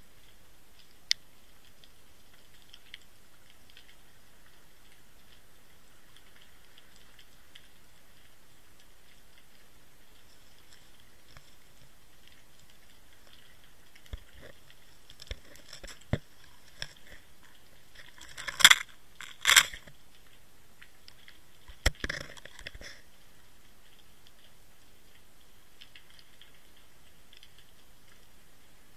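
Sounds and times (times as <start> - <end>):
camera housing scraping over stones: 18.2 - 19.9.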